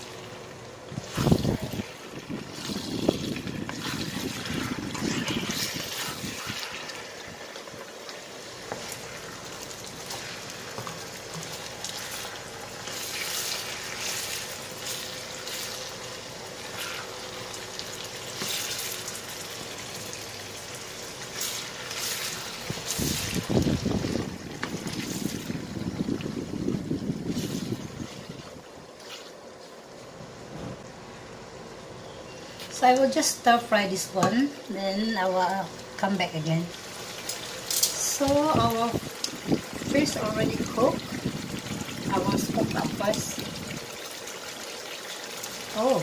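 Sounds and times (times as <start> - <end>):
food sizzling in a wok: 0.0 - 28.4, 32.8 - 46.0
spatula scraping a pan: 3.7 - 7.0, 16.6 - 17.1.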